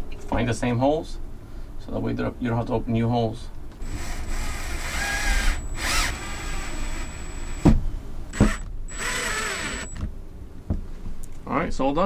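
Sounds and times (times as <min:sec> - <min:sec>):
drill clicks: 0:03.8 - 0:07.7, 0:08.3 - 0:10.1
cordless drill motor whirring: 0:03.8 - 0:10.1.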